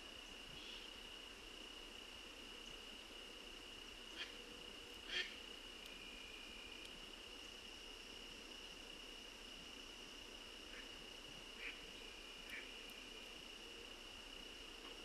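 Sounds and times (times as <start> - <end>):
insects singing: 2.6 - 8.3.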